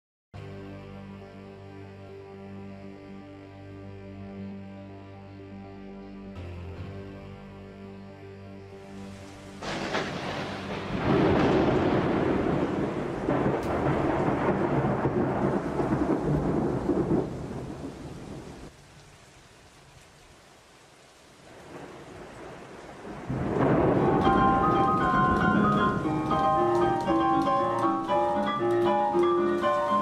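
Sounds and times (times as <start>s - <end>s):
rain: 8.8s - 30.0s
thunder cracking and rumbling: 9.6s - 18.7s, 21.5s - 30.0s.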